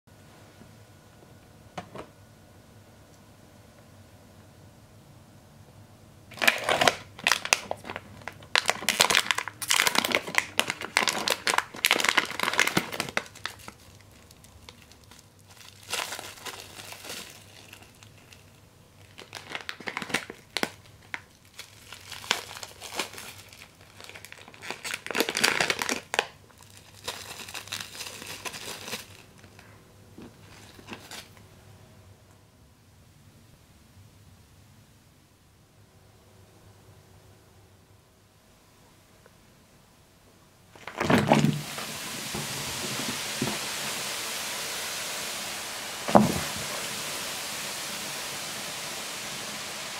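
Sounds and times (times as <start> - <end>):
plastic wrappers crinkling: 6.3 - 31.4, 40.7 - 43.5.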